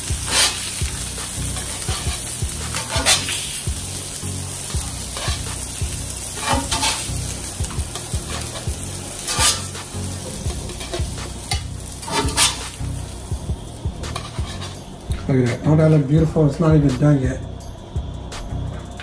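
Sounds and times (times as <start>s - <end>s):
fish sizzling in hot oil: 0.0s - 15.4s
metal spatula scraping iron: 0.2s - 0.8s, 1.5s - 3.5s, 5.0s - 5.6s, 6.4s - 12.8s, 14.0s - 14.9s.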